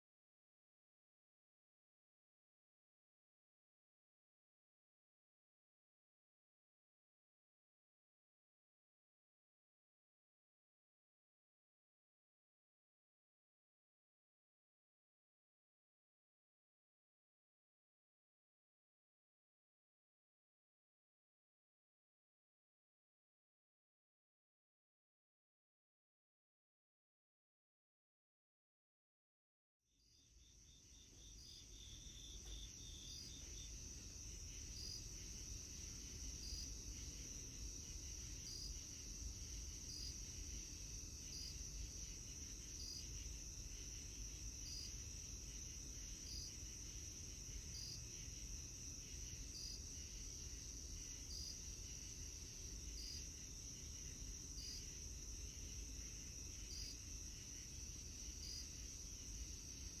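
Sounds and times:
crickets trilling: 0:30.4 - 1:00.0.

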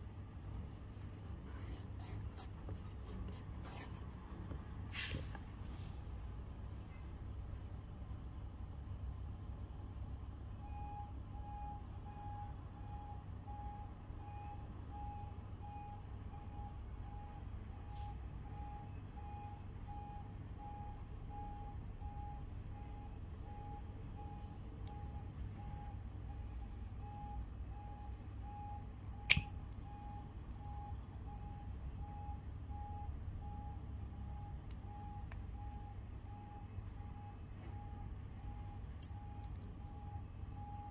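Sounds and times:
low steady rumble: 0:00.0 - 0:40.9
reversing alarm beeping: 0:10.6 - 0:40.9
perfume cap click: 0:29.2 - 0:29.5.

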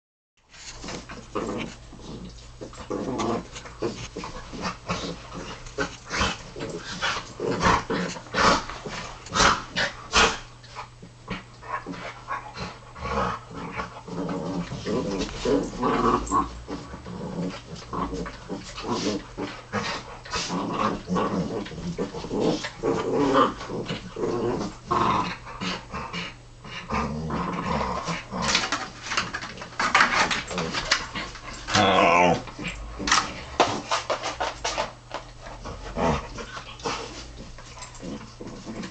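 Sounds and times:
dogs scrabbling on a blanket: 0:00.5 - 0:12.6, 0:13.6 - 0:25.3, 0:27.3 - 0:38.9
dogs growling playfully: 0:00.8 - 0:38.9.

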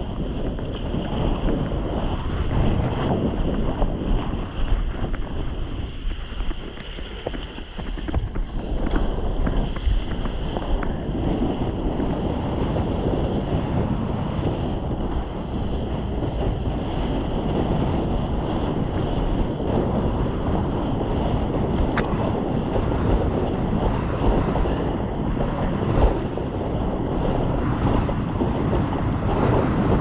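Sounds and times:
rushing water and waves: 0:00.0 - 0:30.0
wind buffeting microphone: 0:00.0 - 0:30.0.

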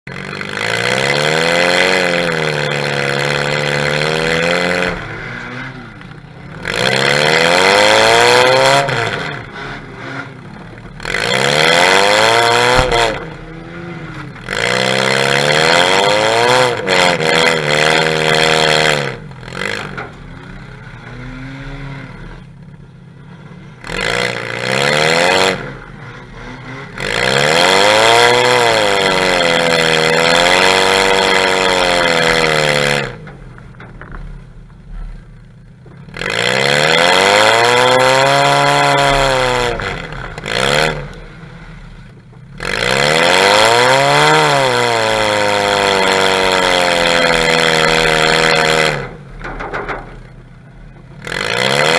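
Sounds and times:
car engine revving hard: 0:00.1 - 0:22.5, 0:23.7 - 0:33.4, 0:36.1 - 0:42.0, 0:42.6 - 0:49.6, 0:51.0 - 0:51.9.

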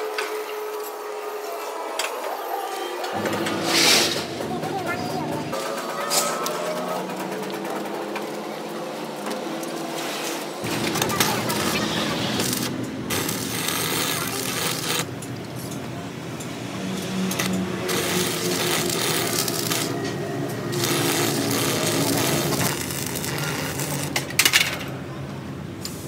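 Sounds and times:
cutting torch hissing: 0:03.2 - 0:05.2, 0:10.0 - 0:24.4.

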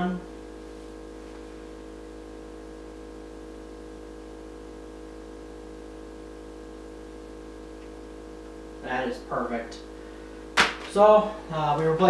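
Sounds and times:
electrical mains hum with hiss: 0:00.0 - 0:12.0.

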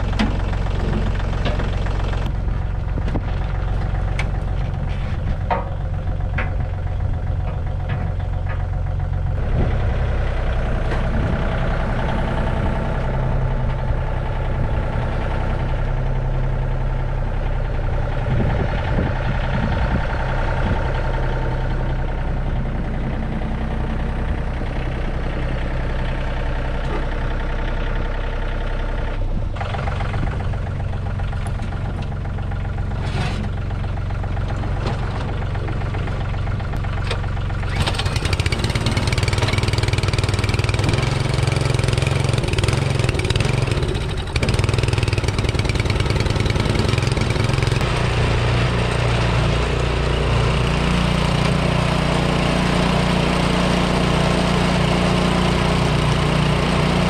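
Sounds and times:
engine running: 0:00.0 - 0:57.0.

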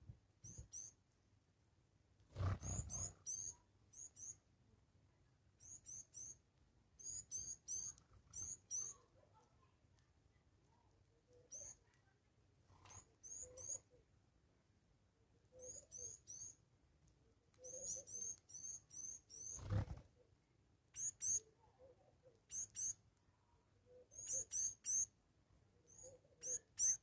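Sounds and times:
high-pitched bird calls: 0:00.4 - 0:01.0, 0:02.4 - 0:04.4, 0:05.6 - 0:06.4, 0:07.0 - 0:09.1, 0:11.5 - 0:11.8, 0:12.8 - 0:14.0, 0:15.6 - 0:16.6, 0:17.6 - 0:20.0, 0:20.9 - 0:21.5, 0:22.4 - 0:23.0, 0:23.9 - 0:25.1, 0:25.9 - 0:27.0.

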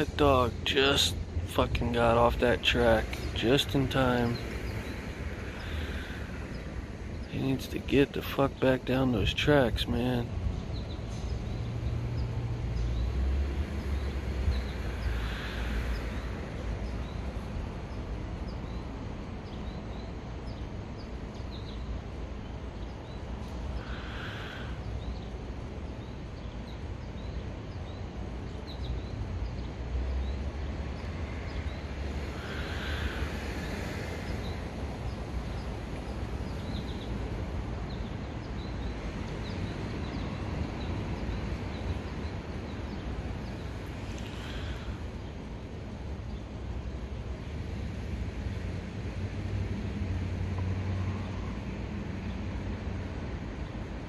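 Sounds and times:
small birds chirping: 0:00.0 - 0:48.6
loud calls: 0:02.8 - 0:06.8, 0:14.8 - 0:16.6, 0:23.6 - 0:25.1, 0:32.1 - 0:34.6.

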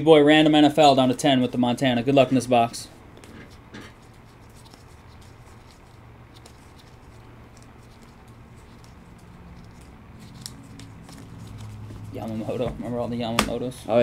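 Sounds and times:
low steady hum: 0:00.0 - 0:14.0
cards flipping and rustling: 0:03.1 - 0:13.6.

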